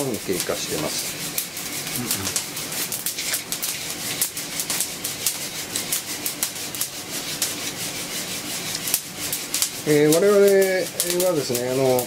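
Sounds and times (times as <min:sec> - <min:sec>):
coffee beans rattling in roaster: 0:00.0 - 0:12.0
beans crackling pops: 0:08.7 - 0:11.8.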